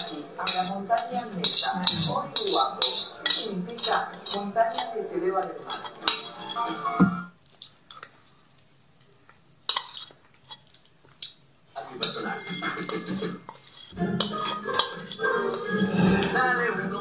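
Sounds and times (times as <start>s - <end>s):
fork scraping a bowl: 0.0s - 7.0s, 9.7s - 10.7s, 12.0s - 17.0s
chewing: 5.6s - 11.4s, 12.0s - 16.3s.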